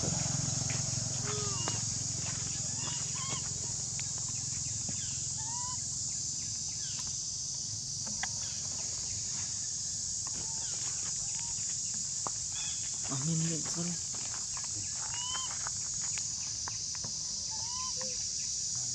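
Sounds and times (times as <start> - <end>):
high-pitched insect drone: 0.0 - 18.9
short chirping calls: 0.3 - 7.1, 14.5 - 15.7, 17.4 - 18.6.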